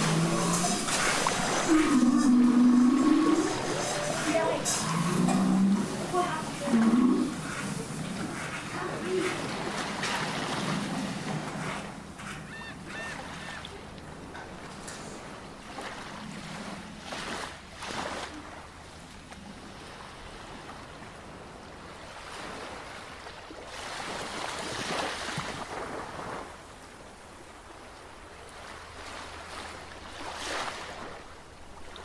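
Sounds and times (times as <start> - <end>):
ocean surf rushing: 0.0 - 18.8.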